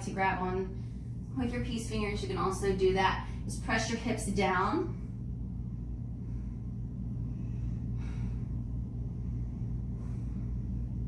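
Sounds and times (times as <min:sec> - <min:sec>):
low room hum: 0:00.0 - 0:11.0
soft breath: 0:04.9 - 0:11.0.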